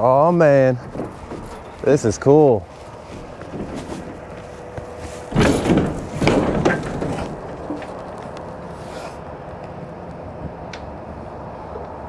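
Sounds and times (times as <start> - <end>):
steady background hum: 0.0 - 12.0
trailer door rattling open: 0.5 - 2.4, 3.0 - 8.3.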